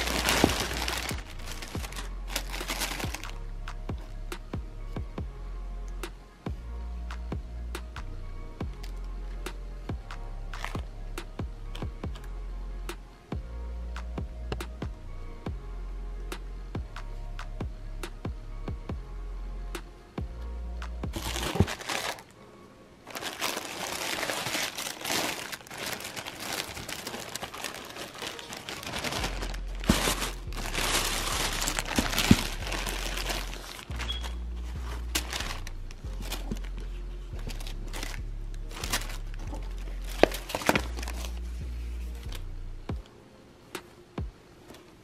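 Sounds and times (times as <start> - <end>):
plastic and tissue paper crinkling: 0.0 - 3.4, 21.1 - 22.4, 23.1 - 42.2
background music with bass: 0.0 - 21.9, 28.9 - 43.1.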